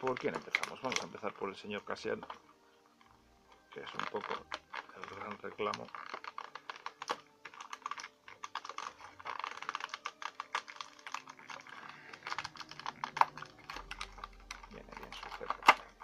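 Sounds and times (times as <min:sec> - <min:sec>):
plastic blister tray crinkling: 0:00.0 - 0:16.0.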